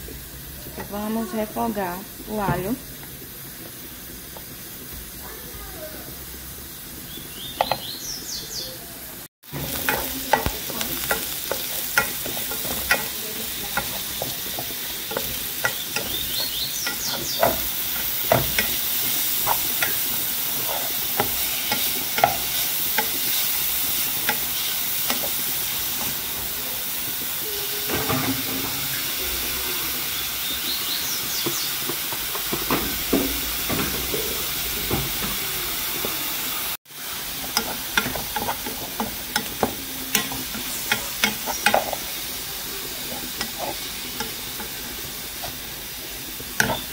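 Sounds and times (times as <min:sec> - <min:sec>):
vegetables sizzling in a pot: 0:00.0 - 0:46.9
spoon stirring and scraping pan: 0:09.4 - 0:28.8, 0:37.0 - 0:46.9.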